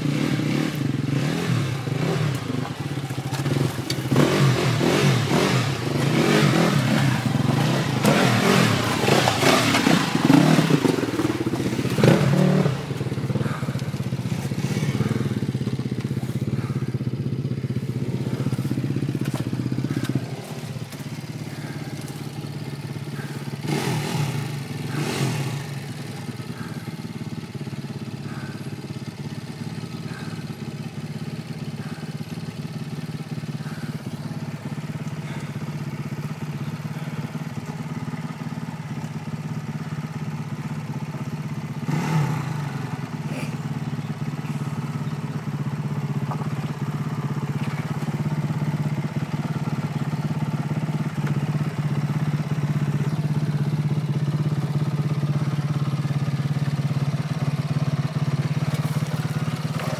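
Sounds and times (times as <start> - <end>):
dirt bike engines with throttle blips: 0.0 - 59.9
tyres and chassis clattering on rock: 1.9 - 16.9, 17.7 - 23.5, 43.4 - 50.0, 57.5 - 59.9.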